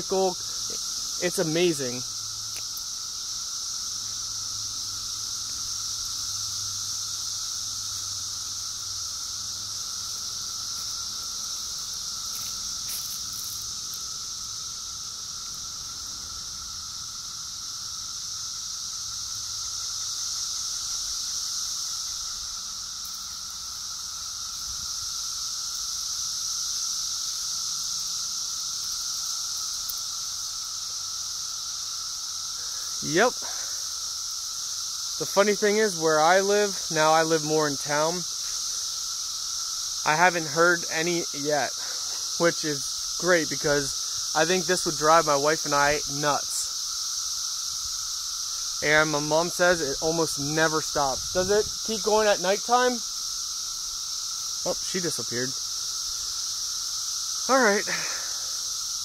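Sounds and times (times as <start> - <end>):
cicadas droning: 0.0 - 59.0
faint steady tone: 54.6 - 59.0.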